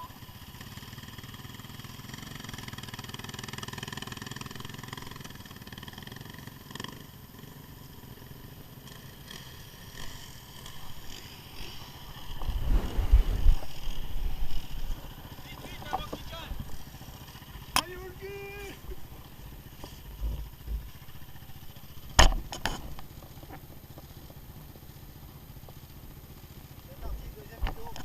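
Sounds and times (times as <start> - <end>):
quad bike engine running: 0.0 - 28.0
low rumble on microphone: 12.2 - 15.2.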